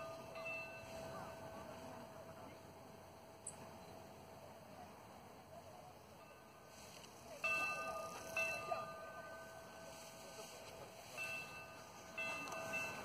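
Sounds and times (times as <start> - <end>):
faint distant voices: 0.0 - 13.0
ringing chime tones: 11.1 - 13.0.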